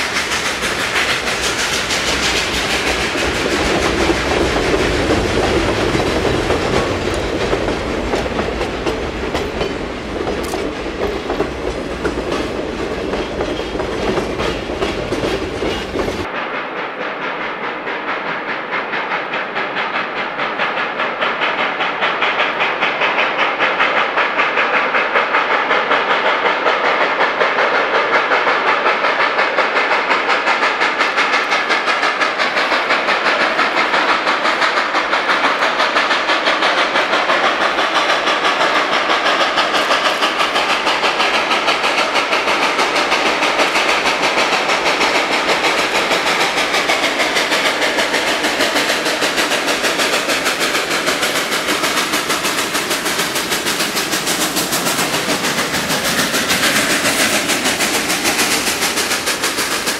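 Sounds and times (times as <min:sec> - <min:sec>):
freight cars rolling on rails: 0:00.0 - 0:59.9
steam locomotive exhaust beating: 0:00.0 - 0:59.9.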